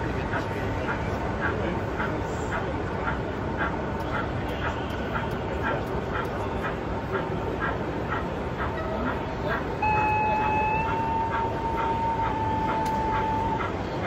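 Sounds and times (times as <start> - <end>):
murmur of crowd: 0.0 - 14.0
model train whistle: 9.8 - 14.0.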